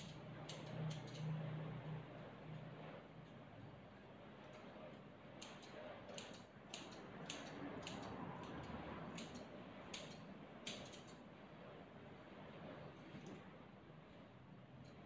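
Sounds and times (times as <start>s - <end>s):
scissors snipping dog fur: 0.0s - 1.7s, 4.4s - 11.2s.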